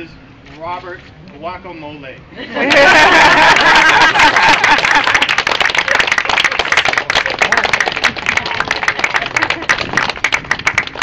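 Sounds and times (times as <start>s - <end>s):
people applauding: 2.7s - 11.0s.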